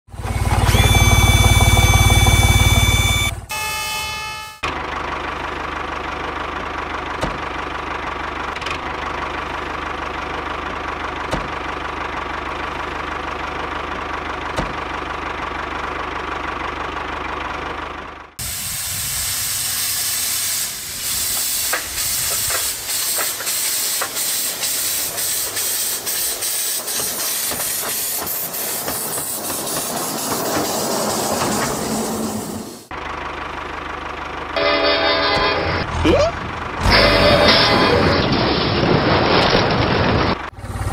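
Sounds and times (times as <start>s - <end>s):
miniature locomotive hissing and ticking: 18.4s - 32.1s.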